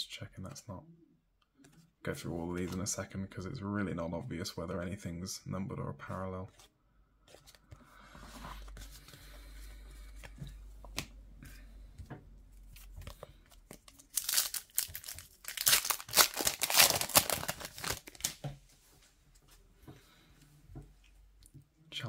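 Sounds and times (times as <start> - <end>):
cards being shuffled: 12.6 - 18.4
foil wrapper crinkling and tearing: 13.7 - 18.4.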